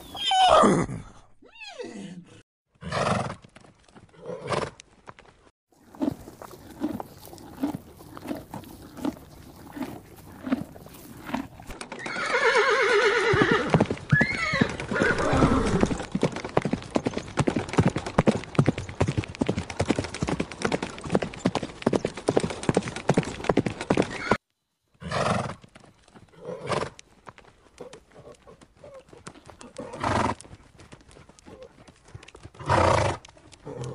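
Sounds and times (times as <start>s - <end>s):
horse whinnying: 0.0s - 2.2s, 5.9s - 16.0s, 24.1s - 24.4s
horses moving clicks and knocks: 3.4s - 24.4s, 25.6s - 33.9s.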